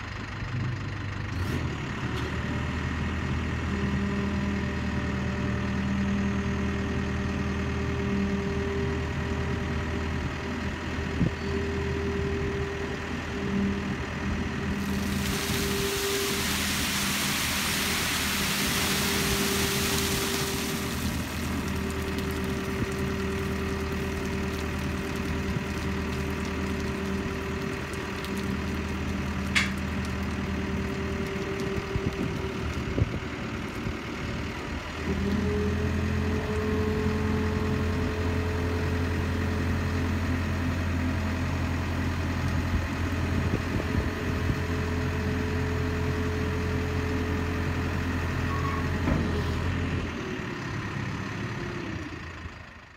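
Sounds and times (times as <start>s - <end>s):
diesel engine idling: 0.0s - 44.2s, 49.7s - 52.9s.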